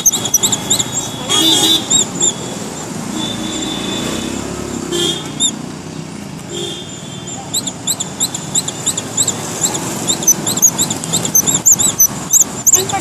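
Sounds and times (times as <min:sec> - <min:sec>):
short high squeaks: 0:00.0 - 0:02.6, 0:07.5 - 0:13.0.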